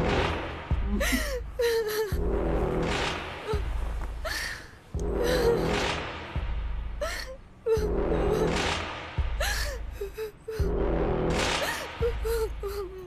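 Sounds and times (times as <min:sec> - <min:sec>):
background music: 0:00.0 - 0:13.0
girl sobbing: 0:00.8 - 0:02.2, 0:03.5 - 0:05.7, 0:07.0 - 0:08.5, 0:09.4 - 0:10.7, 0:11.6 - 0:13.0.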